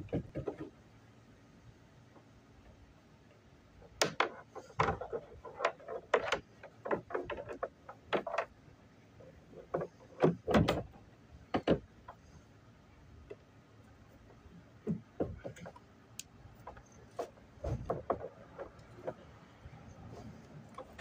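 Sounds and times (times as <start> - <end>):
hard objects knocking and clattering: 0.0 - 0.8, 3.8 - 8.6, 9.2 - 12.3, 14.8 - 15.9, 16.6 - 19.4.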